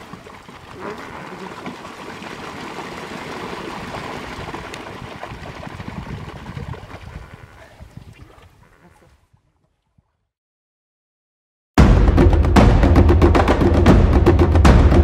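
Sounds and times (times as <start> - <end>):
water splashing and rushing: 0.0 - 9.0
birds pattering across water: 0.0 - 10.1.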